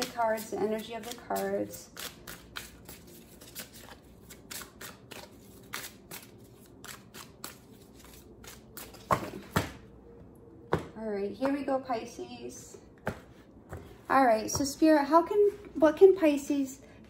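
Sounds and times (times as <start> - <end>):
cards being shuffled: 0.0 - 9.4.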